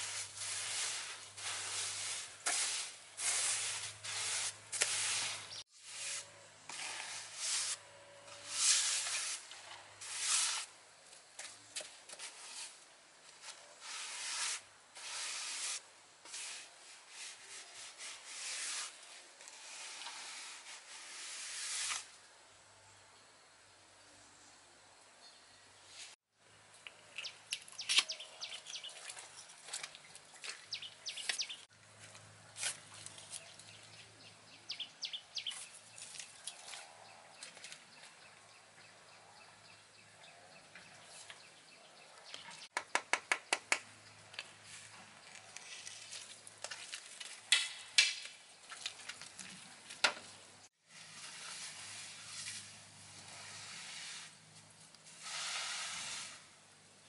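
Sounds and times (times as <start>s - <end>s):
trowel scraping wet concrete: 0.0s - 10.7s
steady hiss: 8.5s - 10.8s, 50.9s - 56.9s.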